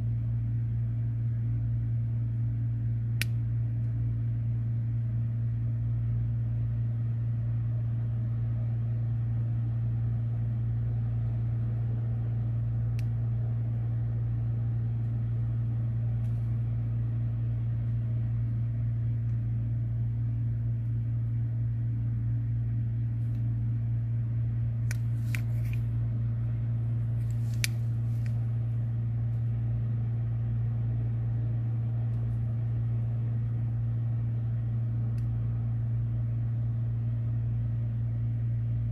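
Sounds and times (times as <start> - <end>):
low hum of electrical device: 0.0 - 38.9.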